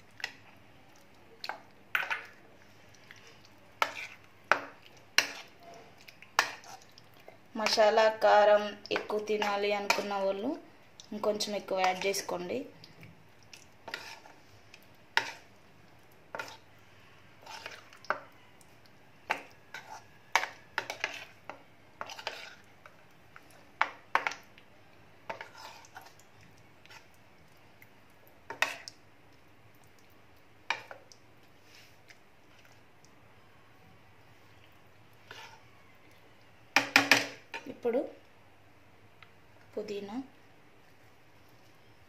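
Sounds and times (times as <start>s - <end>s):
spoon scraping plastic bowl: 22.0s - 22.6s.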